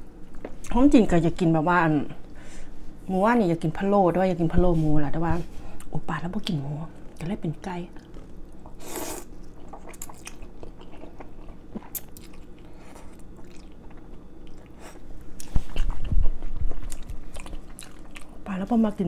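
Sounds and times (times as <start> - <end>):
wet chewing clicks and smacks: 9.4 - 14.8, 15.4 - 18.4.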